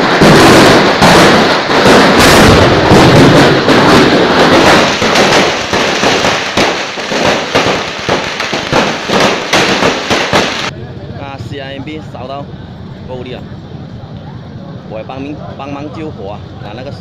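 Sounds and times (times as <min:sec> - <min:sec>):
fireworks crackling bangs: 0:00.0 - 0:10.8.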